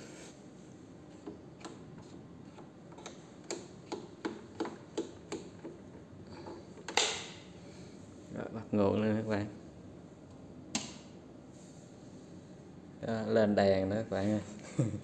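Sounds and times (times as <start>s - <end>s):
mixing console fader clicks: 10.7s - 11.1s.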